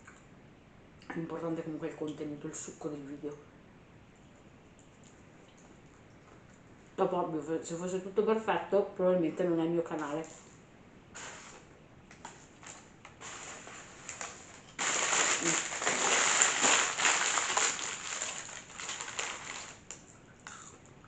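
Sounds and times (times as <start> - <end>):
paper wrappers crinkling: 12.2 - 20.1.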